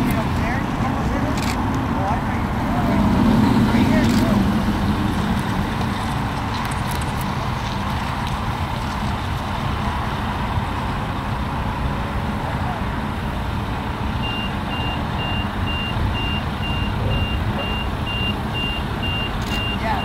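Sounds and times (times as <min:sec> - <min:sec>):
jet engines low rumble: 0:00.0 - 0:20.0
reversing beeper: 0:14.2 - 0:20.0.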